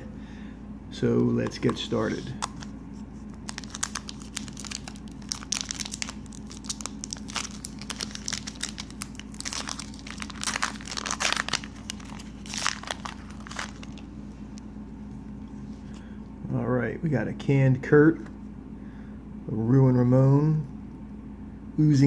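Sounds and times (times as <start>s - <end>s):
wrapper crinkling and tearing: 3.4s - 14.1s.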